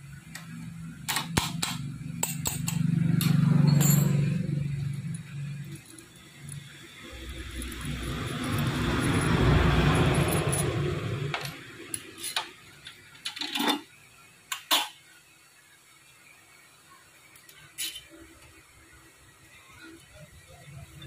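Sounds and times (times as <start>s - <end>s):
metal knocks and clinks: 1.1s - 4.4s.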